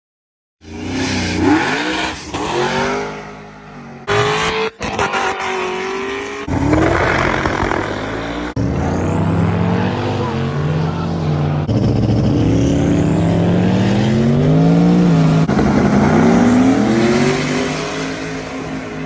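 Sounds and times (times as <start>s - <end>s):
car engine revving: 0.6s - 19.0s.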